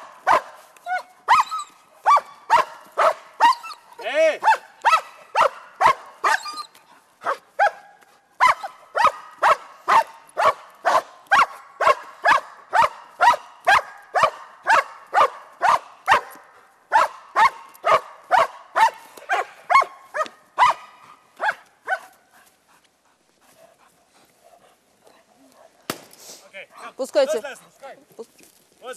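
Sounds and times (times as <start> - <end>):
dog barking sharply: 0.0 - 1.5, 2.1 - 3.8, 4.4 - 6.5, 7.2 - 22.1.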